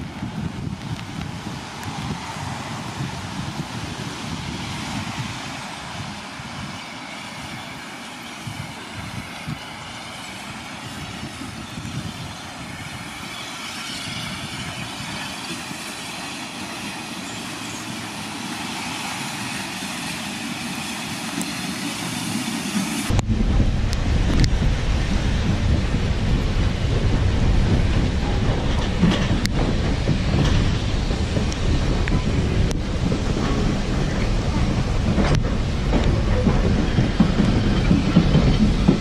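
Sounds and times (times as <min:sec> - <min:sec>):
steam locomotive running: 0:00.0 - 0:39.0
loud low rumble: 0:23.1 - 0:39.0.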